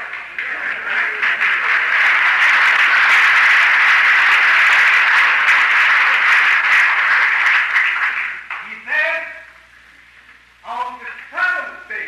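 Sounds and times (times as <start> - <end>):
audience applauding: 0.0 - 8.8
speech: 8.6 - 9.6, 10.6 - 12.0.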